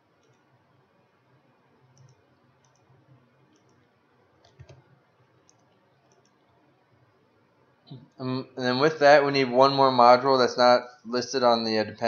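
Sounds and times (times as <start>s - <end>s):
computer mouse clicks: 0.2s - 0.6s, 1.8s - 6.6s.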